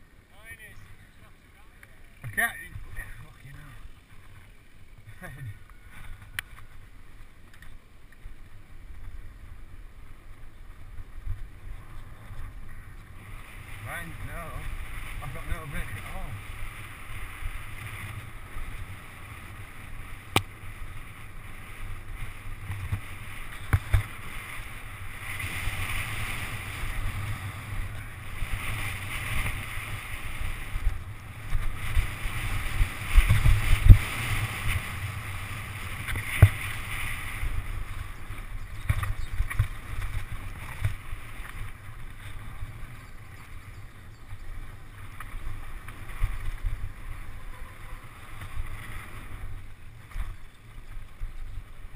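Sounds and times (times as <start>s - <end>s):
tyres on loose gravel: 0.0s - 51.9s
wind over microphone: 8.4s - 51.9s
bike knocks and rattles: 23.6s - 24.2s.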